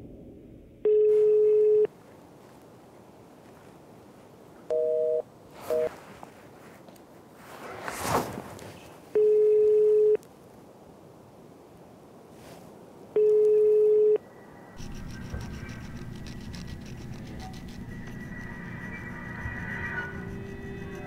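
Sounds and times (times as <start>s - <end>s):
telephone ringback beeps: 0.9s - 1.9s, 4.7s - 5.9s, 9.2s - 10.2s, 13.2s - 14.2s
low hum with music: 14.8s - 21.0s.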